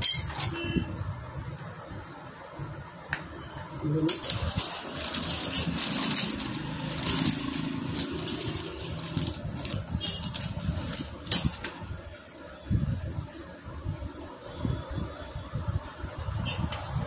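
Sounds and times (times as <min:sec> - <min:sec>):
plastic packet crackling: 0:04.1 - 0:11.8.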